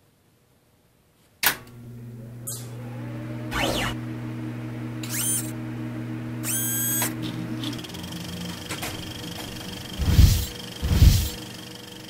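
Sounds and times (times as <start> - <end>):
low synthesized drone: 3.4 - 12.0
electronic pitch sweep: 9.6 - 12.0
sharp electronic hit: 10.0 - 11.5.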